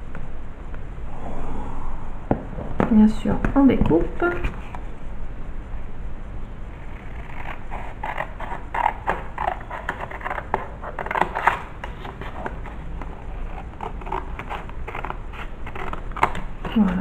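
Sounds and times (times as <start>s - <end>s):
steady low hum: 0.0s - 17.0s
scissors cutting cardstock: 6.9s - 17.0s.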